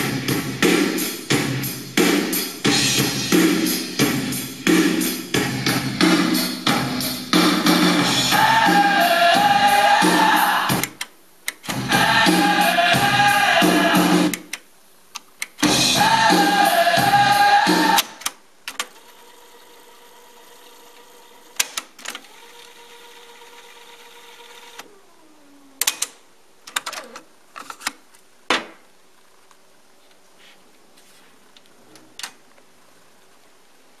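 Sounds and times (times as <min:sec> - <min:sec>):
music from cassette tape: 0:00.0 - 0:14.7, 0:15.3 - 0:24.8.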